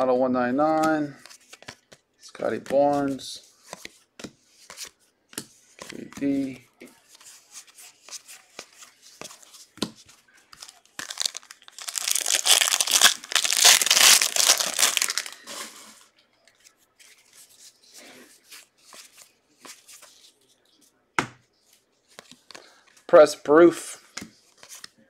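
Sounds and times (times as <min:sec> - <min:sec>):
cards being handled: 0:00.8 - 0:20.8, 0:21.6 - 0:23.0, 0:24.1 - 0:25.0
foil wrapper tearing and crinkling: 0:10.6 - 0:15.5.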